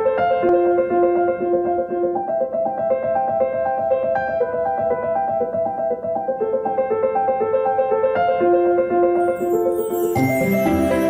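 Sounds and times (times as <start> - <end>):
repeating keyboard notes: 9.3 - 11.0.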